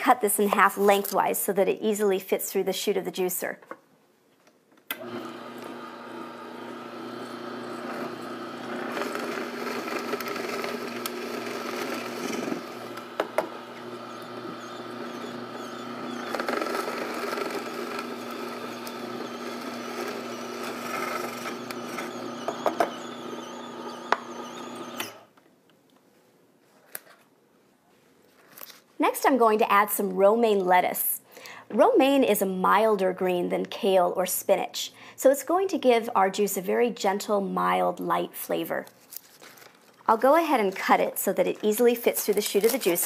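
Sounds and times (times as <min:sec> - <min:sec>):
juicer motor humming: 0:04.9 - 0:25.3.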